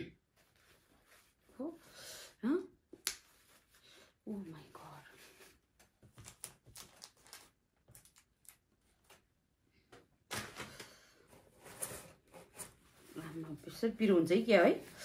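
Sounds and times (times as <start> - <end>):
paper tissue rustling: 0.4 - 1.8.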